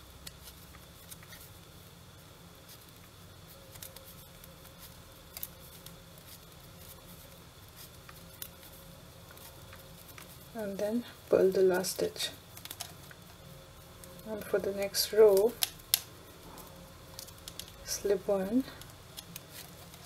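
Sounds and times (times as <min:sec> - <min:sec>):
low steady hum: 0:00.0 - 0:20.0
knitting needles clicking: 0:15.3 - 0:16.1.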